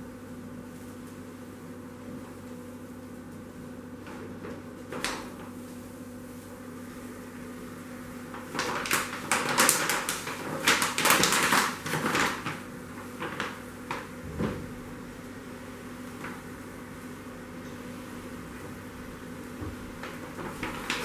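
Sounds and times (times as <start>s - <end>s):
steady electrical hum: 0.0s - 21.0s
paper rustling and crackling: 4.0s - 5.8s, 8.2s - 14.6s, 19.5s - 21.0s.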